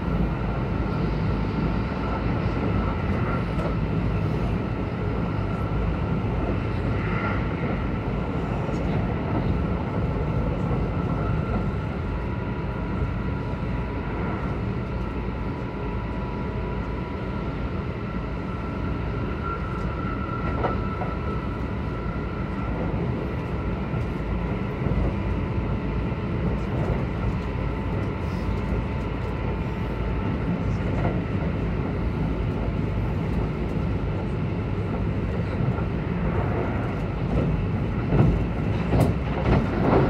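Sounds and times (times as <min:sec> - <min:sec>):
train wheels rumbling on rail: 0:00.0 - 0:40.0.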